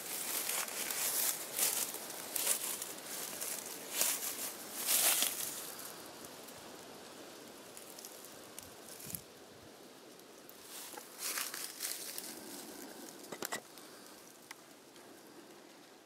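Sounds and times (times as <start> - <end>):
footsteps on dry leaves: 0.0 - 6.0, 10.6 - 13.2.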